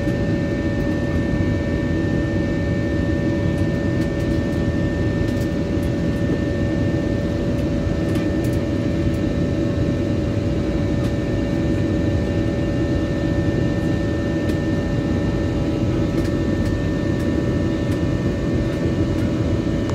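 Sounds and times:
jet engine cabin rumble: 0.0 - 19.9.

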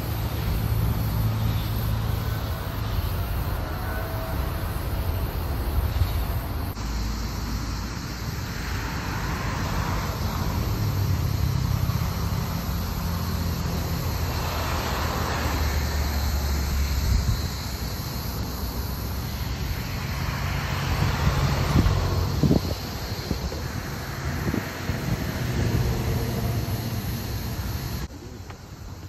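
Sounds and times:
wind buffeting a microphone: 21.0 - 26.0.

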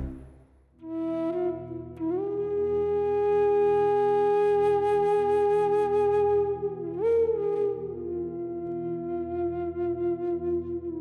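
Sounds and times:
long held melodic note: 0.0 - 0.3
low steady drone: 0.0 - 0.3.

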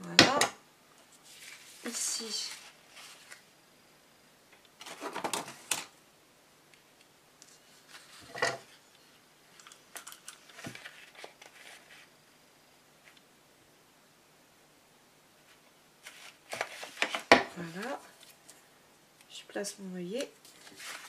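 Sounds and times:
cardstock rustling: 10.5 - 12.2, 16.0 - 18.6, 20.2 - 21.0.

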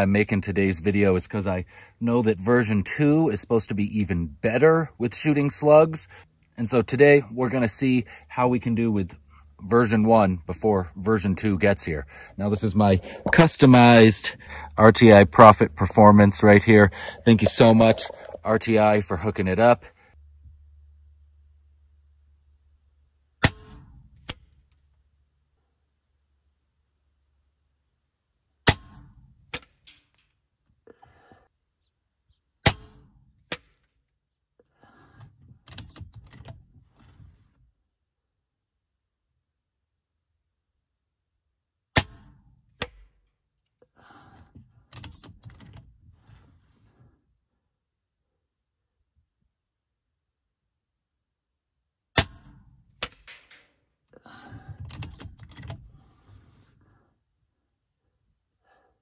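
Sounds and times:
rifle handling clicks and rustling: 53.0 - 53.8.

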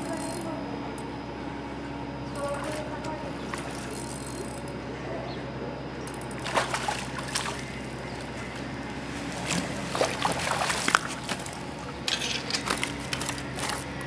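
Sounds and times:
fish thrashing in water: 6.3 - 13.8.

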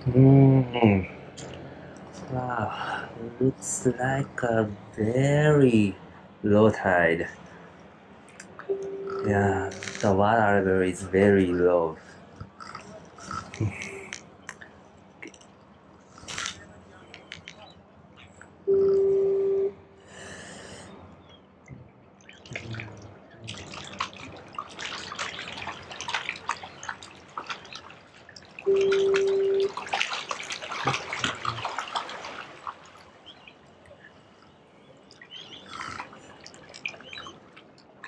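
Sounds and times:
electronic beeps: 8.6 - 10.0, 18.7 - 19.9, 28.7 - 29.7
water dripping and splashing: 11.0 - 17.6, 21.6 - 38.0.

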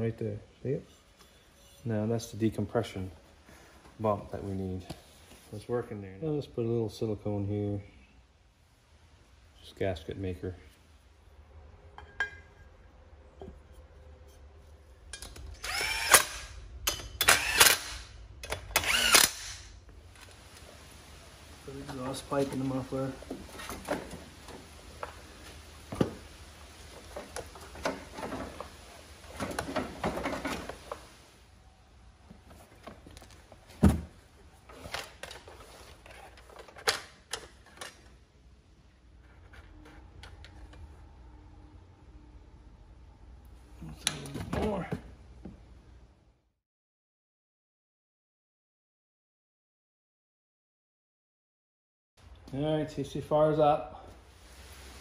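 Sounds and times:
cordless drill driving screws: 15.6 - 16.6, 17.2 - 19.7.

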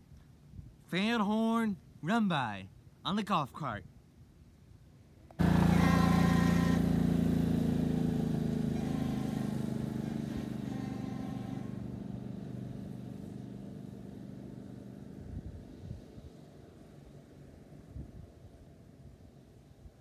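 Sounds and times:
train horn multi-tone chord: 5.4 - 13.4.

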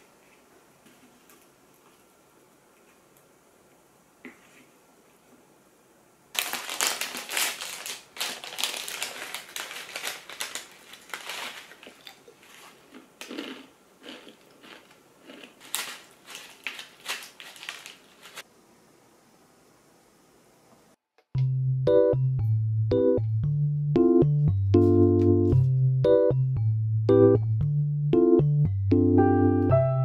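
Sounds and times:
plastic pouch crinkling: 6.3 - 18.4.

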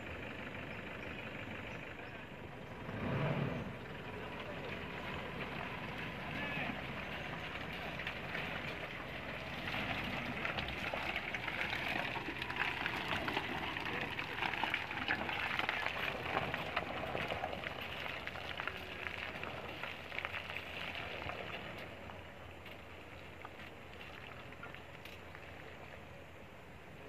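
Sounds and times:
tyres squelching through mud and stones: 1.6 - 26.6.

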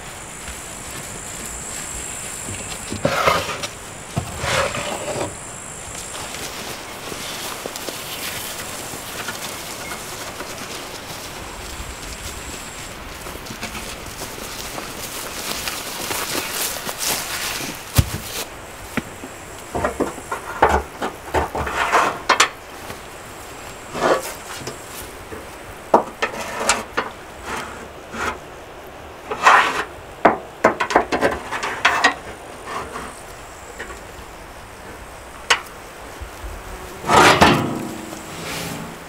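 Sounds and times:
metal rods clanking on barrel: 37.0 - 38.9.

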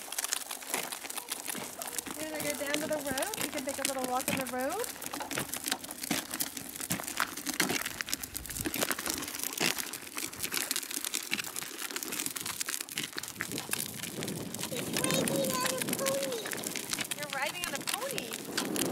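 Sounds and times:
footsteps: 0.0 - 13.8
plastic wheels on gritty pavement: 0.0 - 18.9.

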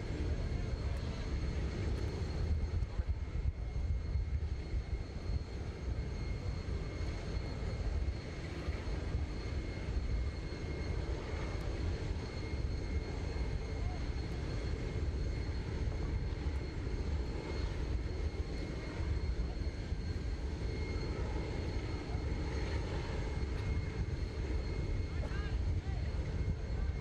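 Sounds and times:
jet engine high whine: 0.0 - 27.0
jet low rumble: 0.0 - 27.0.

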